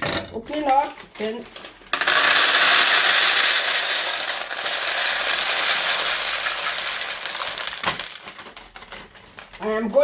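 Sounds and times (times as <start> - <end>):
beans pouring into plastic bowl: 1.9 - 8.2.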